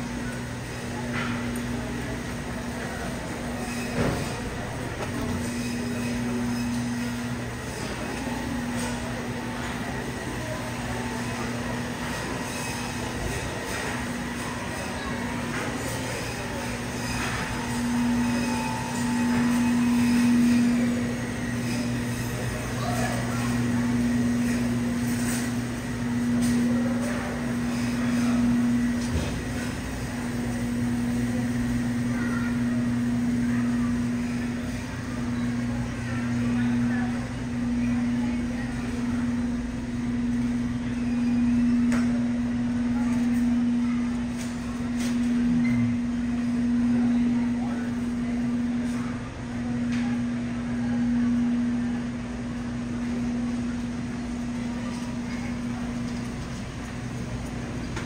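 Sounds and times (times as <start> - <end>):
low electrical hum: 0.0 - 58.0
refrigeration low drone: 35.2 - 56.2.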